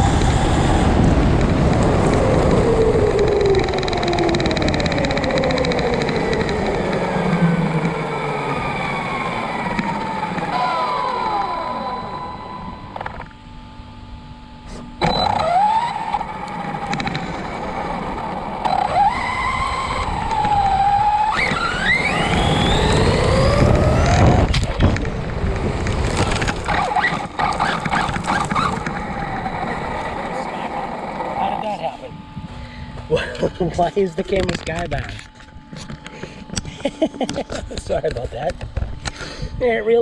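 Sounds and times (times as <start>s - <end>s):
rc truck motor whining: 0.0s - 13.4s, 14.6s - 31.6s.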